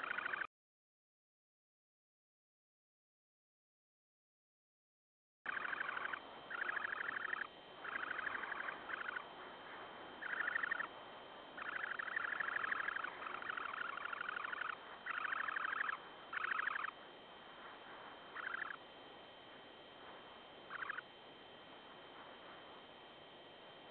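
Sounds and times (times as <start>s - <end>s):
sandpiper buzzy trills: 0.0s - 0.5s, 5.5s - 23.9s.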